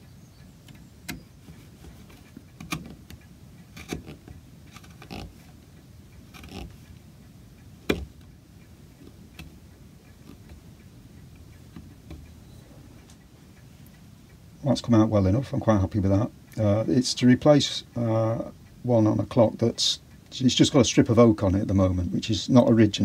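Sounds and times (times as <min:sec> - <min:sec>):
chisel scraping wood: 0:03.7 - 0:05.5, 0:06.2 - 0:06.8.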